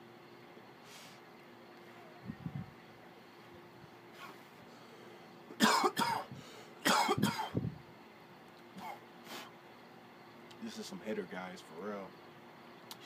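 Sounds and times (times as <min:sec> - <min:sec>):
man coughing: 0:05.6 - 0:07.6.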